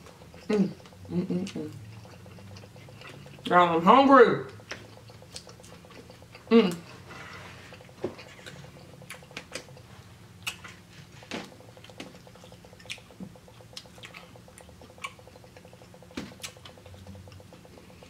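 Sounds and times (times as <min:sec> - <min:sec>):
wet chewing and lip-smacking: 0:00.0 - 0:18.0
soft mouth clicks: 0:09.0 - 0:10.7.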